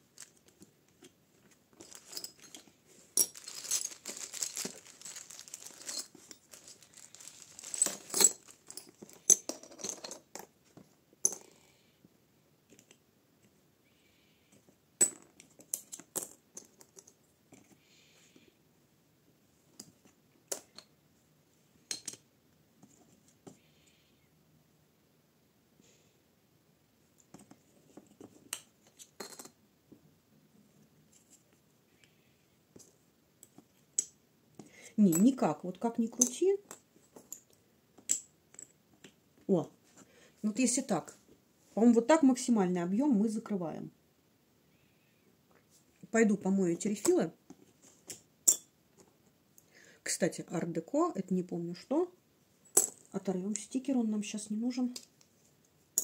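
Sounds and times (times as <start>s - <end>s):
plastic bag crinkling: 1.7s - 9.2s.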